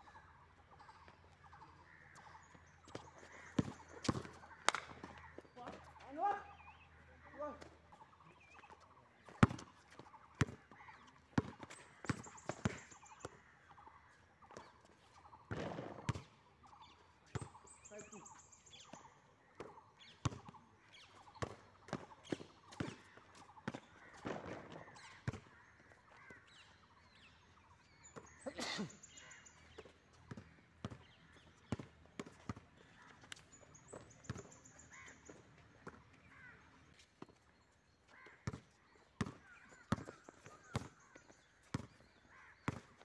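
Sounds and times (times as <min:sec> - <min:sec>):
basketball bouncing on concrete: 0:02.9 - 0:05.8, 0:09.3 - 0:10.7, 0:11.4 - 0:13.4, 0:15.5 - 0:16.3, 0:21.4 - 0:25.5, 0:30.2 - 0:32.6, 0:38.4 - 0:43.0.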